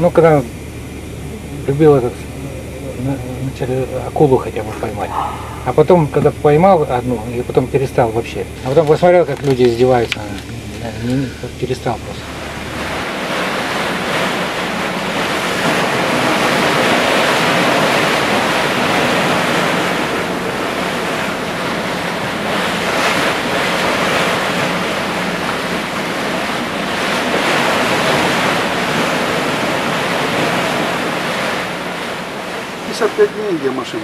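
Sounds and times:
rushing water: 0.0s - 34.0s
wind: 0.0s - 34.0s.

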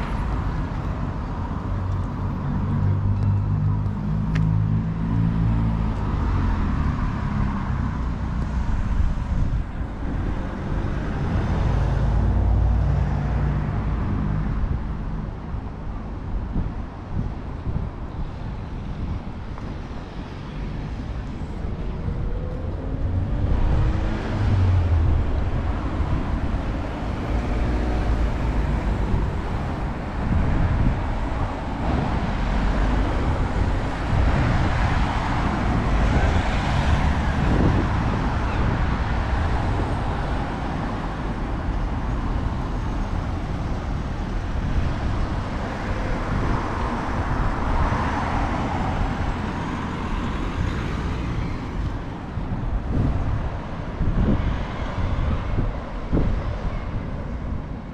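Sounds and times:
cars driving past: 17.7s - 57.9s.

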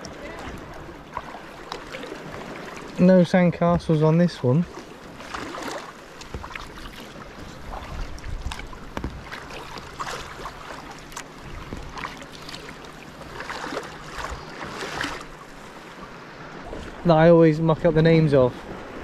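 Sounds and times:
kayak paddle strokes splashing: 0.0s - 17.2s, 18.0s - 19.0s
wind rumble on microphone: 7.4s - 10.0s.

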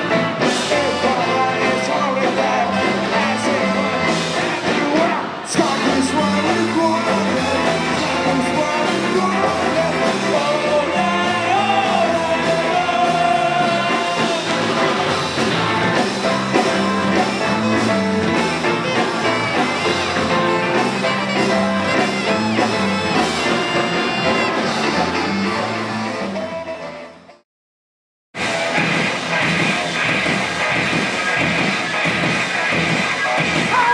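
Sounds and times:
live punk band playing: 0.0s - 27.4s, 28.4s - 33.9s
man singing and shouting: 0.4s - 14.9s.

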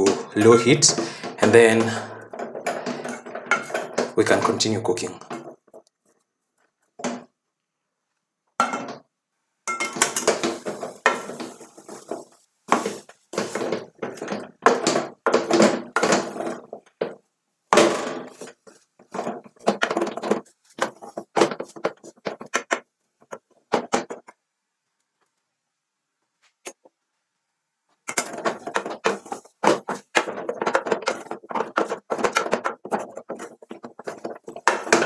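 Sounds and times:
wooden spoon scraping a saucepan: 0.0s - 6.2s, 9.7s - 17.2s, 18.2s - 24.3s, 28.1s - 35.0s.

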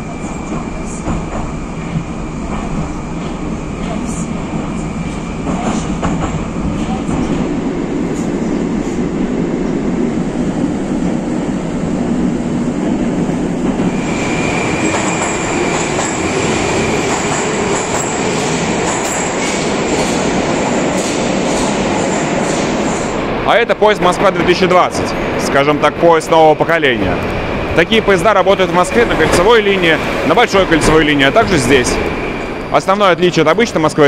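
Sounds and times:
train wheels rumbling on rail: 0.0s - 34.0s
steady high whine: 7.5s - 33.9s.

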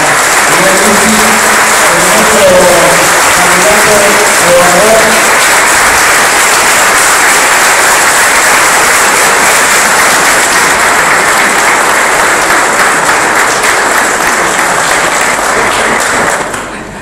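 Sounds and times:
people applauding: 0.0s - 16.8s.

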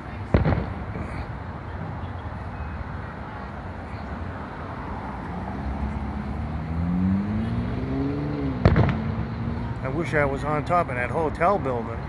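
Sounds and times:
road traffic rumble: 0.0s - 12.0s
car driving past: 3.8s - 10.7s.

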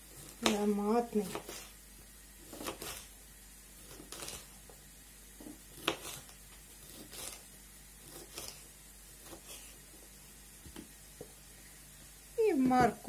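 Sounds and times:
knife slicing bell pepper: 0.0s - 1.8s, 2.4s - 3.2s, 3.8s - 4.8s, 5.4s - 9.9s.

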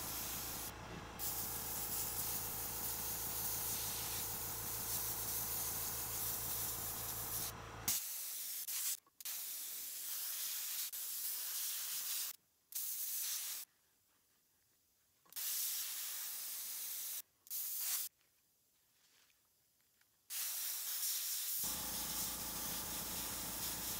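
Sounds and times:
airbrush hissing: 0.0s - 13.6s, 20.3s - 23.9s.

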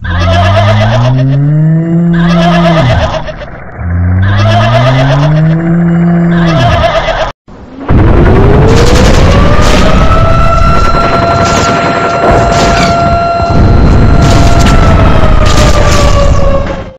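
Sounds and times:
cartoon engine-like sound: 0.0s - 7.3s.

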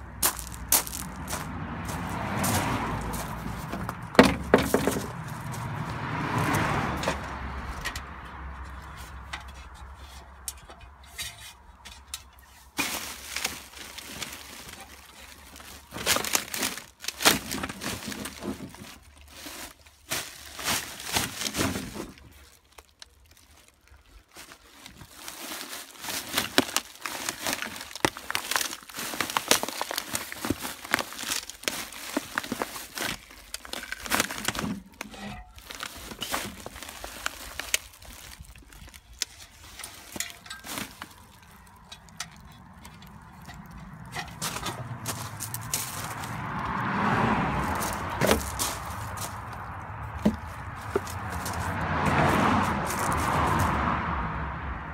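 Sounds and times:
footsteps on gravel: 0.0s - 7.5s, 12.5s - 22.4s, 24.4s - 54.0s
plastic bags crinkling: 12.6s - 46.3s.

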